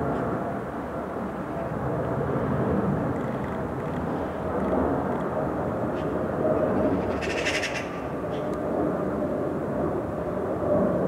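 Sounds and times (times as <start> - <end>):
distant urban rumble: 0.0 - 11.0
magpie rattling chatter: 7.1 - 8.0.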